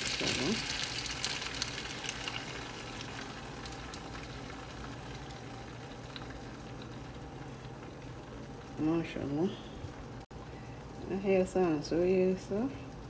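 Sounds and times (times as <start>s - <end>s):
egg sizzling in a frying pan: 0.0s - 10.3s.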